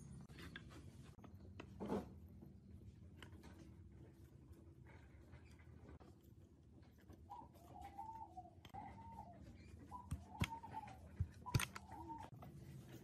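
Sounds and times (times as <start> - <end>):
bird calling: 7.2 - 12.3.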